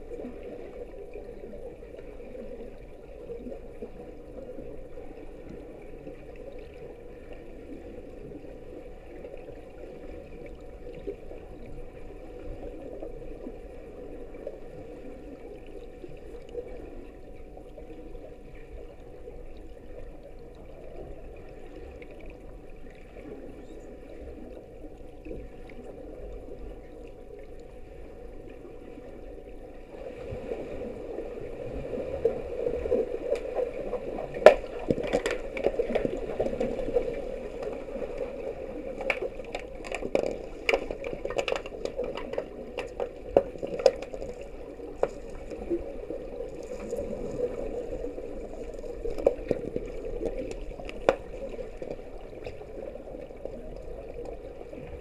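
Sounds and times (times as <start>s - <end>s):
sharp underwater clicks and knocks: 33.3s - 37.9s, 38.9s - 45.6s, 49.1s - 52.6s.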